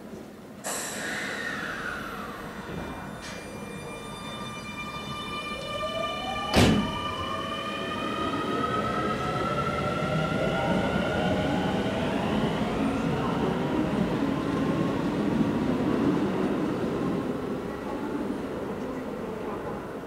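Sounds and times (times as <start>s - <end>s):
sharp thump: 6.5s - 6.9s.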